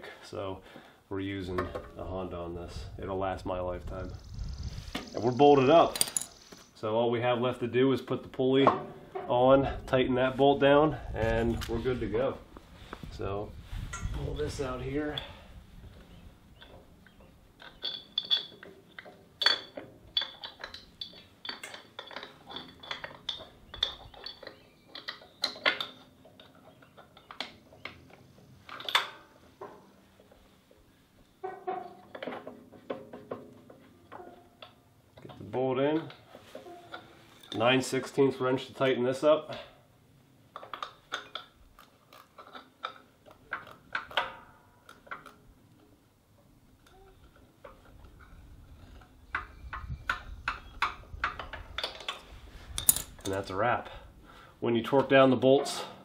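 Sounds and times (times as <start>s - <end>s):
metallic clicks and clanks: 5.0s - 6.8s, 16.6s - 30.4s, 40.5s - 45.9s, 46.8s - 54.0s.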